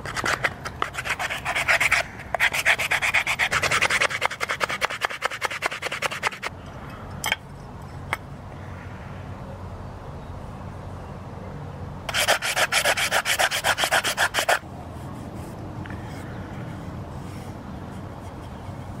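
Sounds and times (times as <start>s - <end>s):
sandpaper rubbing wood: 0.0s - 6.5s, 12.1s - 14.6s.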